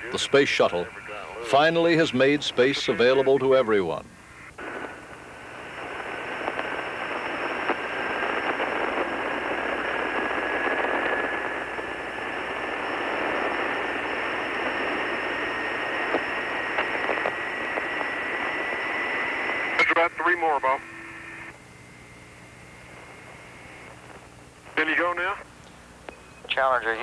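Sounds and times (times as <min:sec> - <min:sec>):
radio static hiss: 0:00.0 - 0:27.0.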